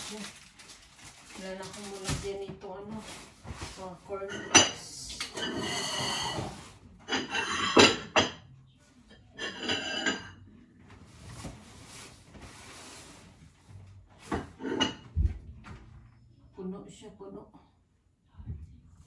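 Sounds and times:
packaging rustling: 0:00.0 - 0:03.8.

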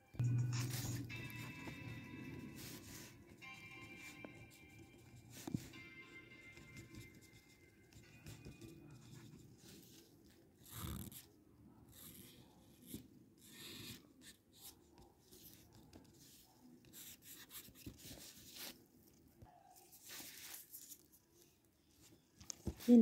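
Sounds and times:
charcoal pencil scratching on paper: 0:00.2 - 0:03.2, 0:11.9 - 0:18.8.

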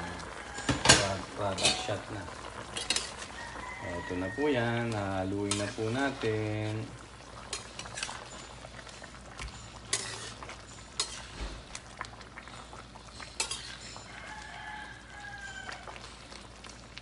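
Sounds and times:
metal spatula scraping a wok: 0:02.7 - 0:03.4, 0:05.4 - 0:06.2, 0:07.5 - 0:11.6, 0:13.1 - 0:14.2.

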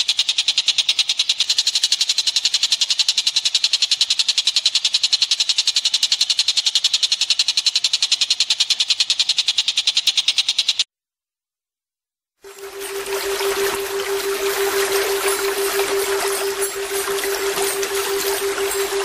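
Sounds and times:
high-pitched pulsing bird trill: 0:12.4 - 0:19.0.

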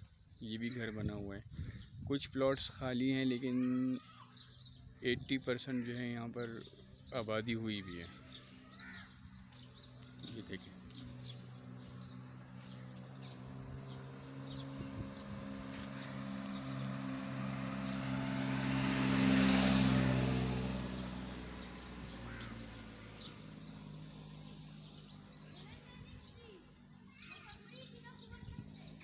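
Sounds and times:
vehicle driving past: 0:08.1 - 0:25.9
faint bird chirps: 0:21.9 - 0:29.0.

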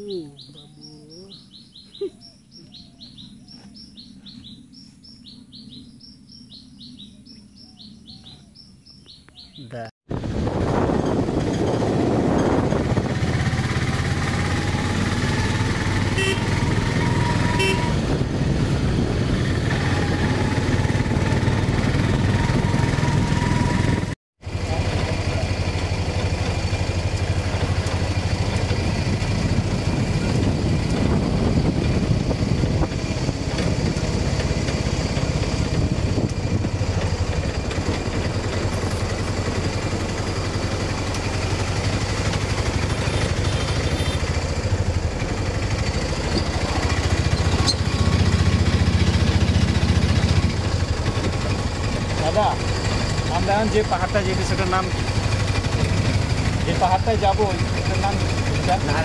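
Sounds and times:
vehicle engine accelerating: 0:10.1 - 0:59.0
short horn toots: 0:16.1 - 0:16.6, 0:17.2 - 0:18.0.

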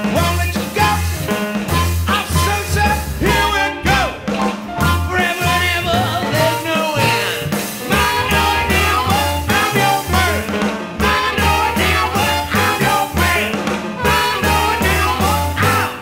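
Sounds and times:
drums: 0:00.0 - 0:16.0
person singing: 0:00.0 - 0:16.0
tuba bass line: 0:00.0 - 0:16.0.

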